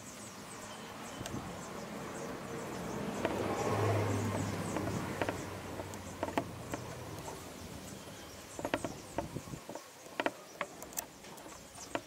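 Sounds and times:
faint high-pitched chirping: 0:00.0 - 0:12.0.

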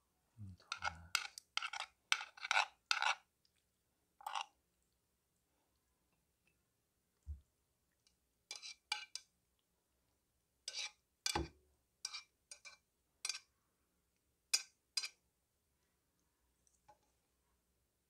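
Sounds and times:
chopsticks scraping a frying pan: 0:00.7 - 0:03.3, 0:04.2 - 0:04.5, 0:08.5 - 0:09.3, 0:10.7 - 0:11.0, 0:12.0 - 0:13.5, 0:14.5 - 0:15.2.

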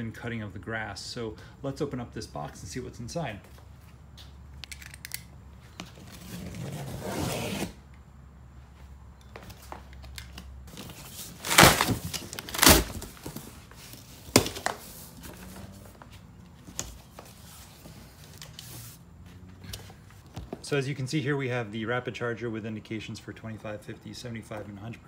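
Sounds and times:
cardboard flaps scraping: 0:05.9 - 0:07.8, 0:10.7 - 0:16.2
cardboard and tape tearing: 0:06.2 - 0:07.8, 0:10.7 - 0:15.6.

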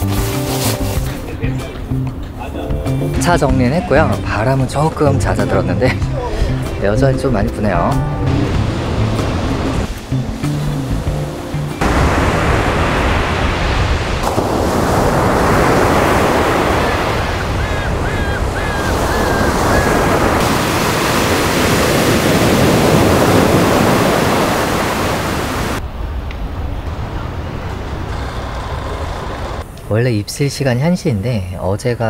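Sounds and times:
surf breaking on a beach: 0:08.4 - 0:29.6
wind buffeting the microphone: 0:11.9 - 0:29.6.

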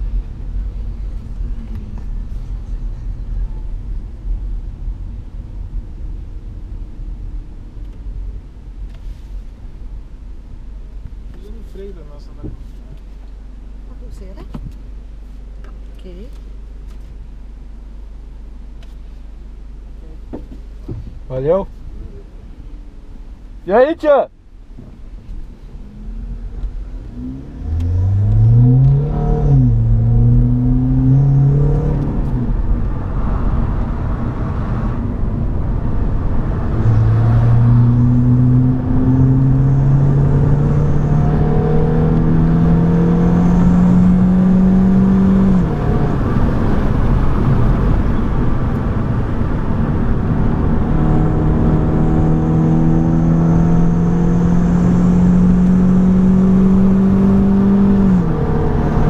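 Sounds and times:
tyre and road noise: 0:19.9 - 0:59.0
car engine accelerating: 0:25.2 - 0:59.0.

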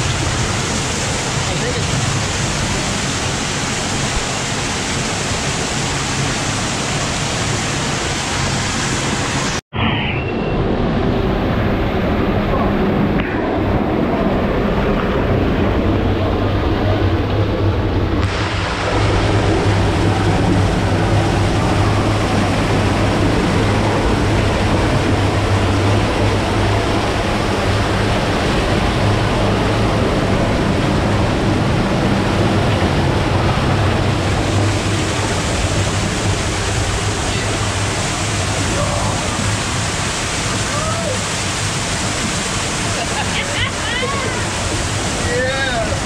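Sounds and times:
waterfall rushing: 0:00.0 - 0:09.6, 0:10.6 - 0:46.0.

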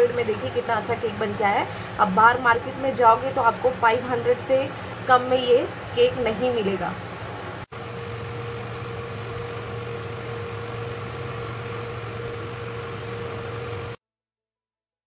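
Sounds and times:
machine hum: 0:00.0 - 0:14.0
mid-pitched whine: 0:00.0 - 0:14.0.

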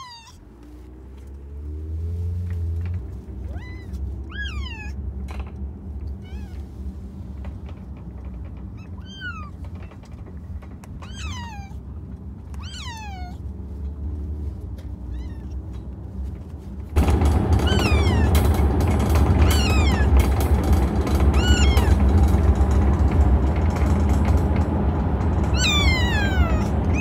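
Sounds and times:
kittens meowing: 0:00.0 - 0:00.4, 0:03.3 - 0:05.0, 0:06.0 - 0:06.9, 0:08.7 - 0:09.9, 0:10.9 - 0:11.9, 0:12.5 - 0:13.5, 0:15.0 - 0:15.7, 0:17.5 - 0:20.4, 0:21.2 - 0:22.1, 0:25.5 - 0:27.0.

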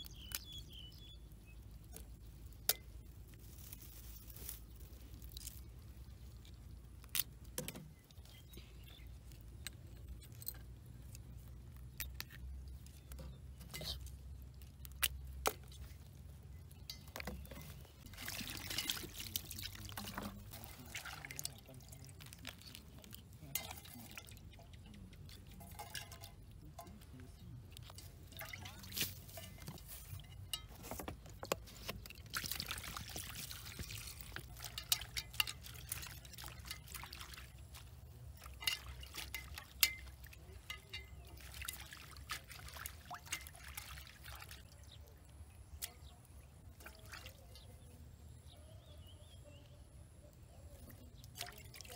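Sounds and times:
water splashing in a bowl: 0:12.8 - 0:30.5, 0:32.0 - 0:48.0, 0:50.8 - 0:51.9.

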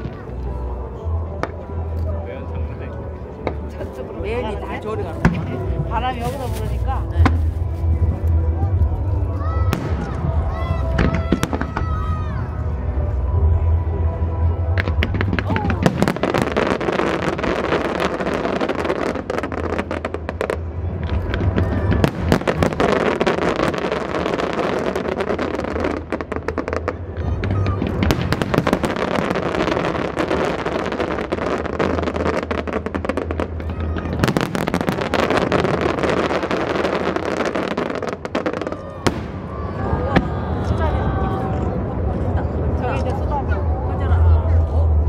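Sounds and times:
fireworks bangs and crackles: 0:00.0 - 0:02.2, 0:03.4 - 0:13.8, 0:14.7 - 0:45.0
music playing: 0:00.0 - 0:33.4.

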